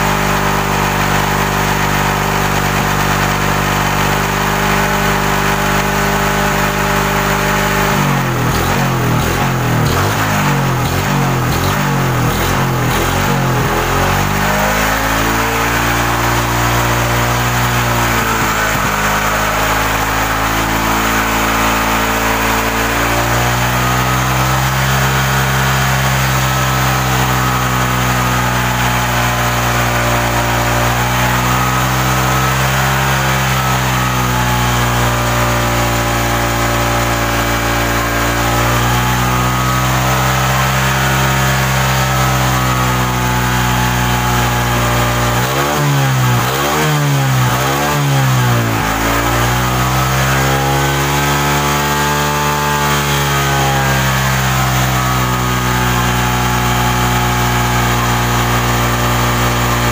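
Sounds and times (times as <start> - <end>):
motorcycle engine idling: 0.2 - 14.4.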